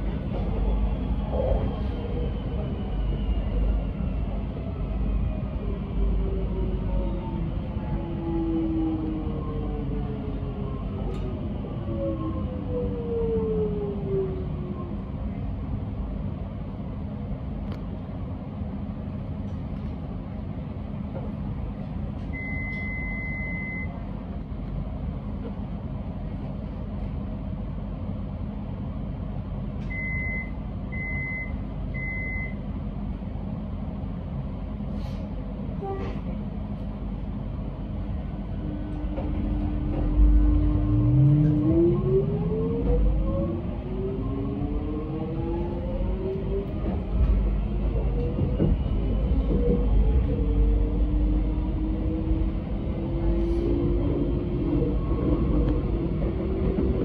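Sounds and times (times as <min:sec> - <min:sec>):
door-closing warning beeps: 0:22.4 - 0:24.0, 0:29.9 - 0:32.6
electric train humming: 0:35.5 - 0:57.0.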